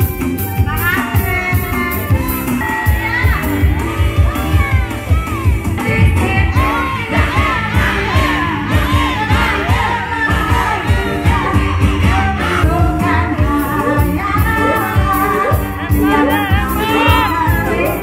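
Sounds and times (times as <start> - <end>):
band playing: 0.0 - 18.0
steady drum beat: 0.0 - 18.0
woman singing into microphone: 5.7 - 18.0.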